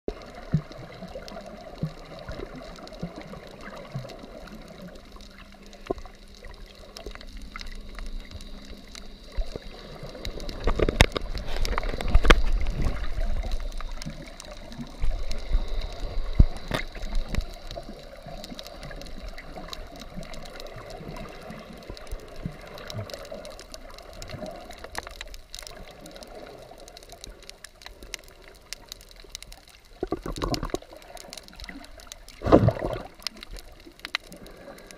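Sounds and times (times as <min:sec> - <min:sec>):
muffled underwater wash: 0:00.1 - 0:34.9
sharp underwater clicks: 0:00.1 - 0:34.9
water sloshing: 0:32.3 - 0:34.4.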